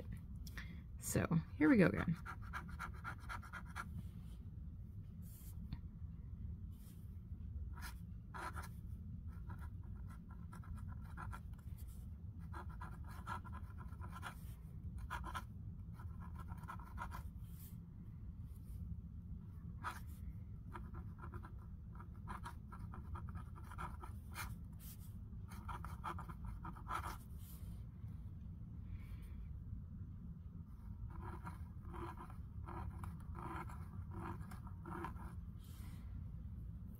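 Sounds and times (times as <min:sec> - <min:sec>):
fountain pen scratching on paper: 0:02.1 - 0:03.9, 0:07.8 - 0:17.7, 0:19.8 - 0:27.3, 0:30.9 - 0:35.4.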